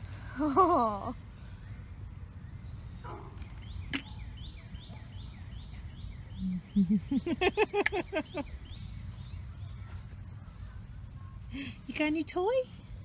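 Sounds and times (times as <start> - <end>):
bird chirping: 1.2 - 11.4.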